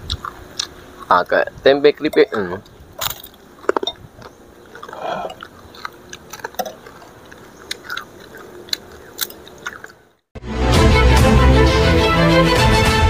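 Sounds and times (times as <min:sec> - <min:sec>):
chewing crispy chips: 0:00.0 - 0:10.2
loud music: 0:10.4 - 0:13.0.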